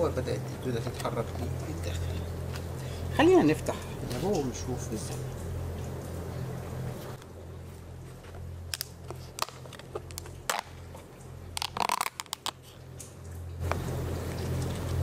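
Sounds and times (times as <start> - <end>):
plastic lid clicking and crackling: 8.7 - 10.8, 11.6 - 12.6.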